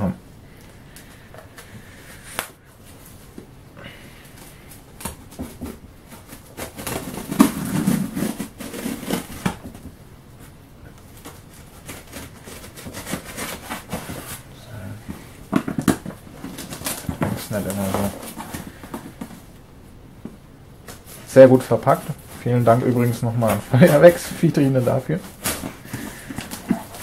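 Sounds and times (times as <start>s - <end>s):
cardboard box scraping and knocking: 5.3s - 9.9s, 15.5s - 19.4s.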